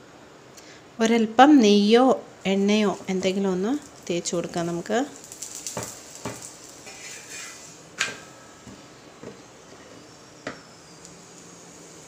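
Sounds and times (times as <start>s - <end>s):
faint sizzle: 0.0s - 12.0s
spoon scraping iron griddle: 5.5s - 8.6s.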